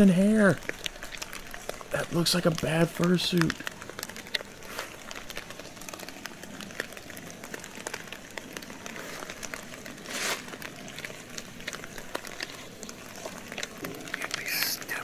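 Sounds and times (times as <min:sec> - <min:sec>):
footsteps crunching through dry leaves: 0:10.0 - 0:10.6.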